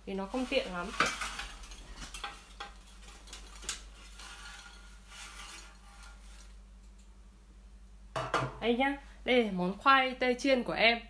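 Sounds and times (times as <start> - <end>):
metal basket clinking and rattling: 0.3 - 6.5.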